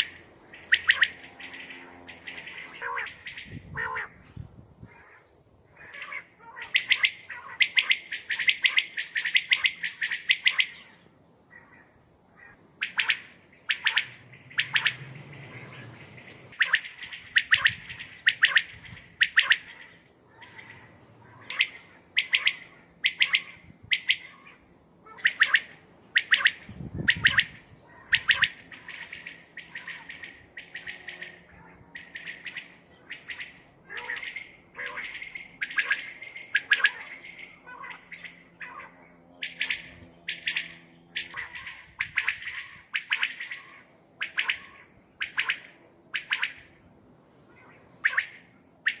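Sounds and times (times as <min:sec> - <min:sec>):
quail calling: 0:00.0 - 0:46.8, 0:47.5 - 0:49.0.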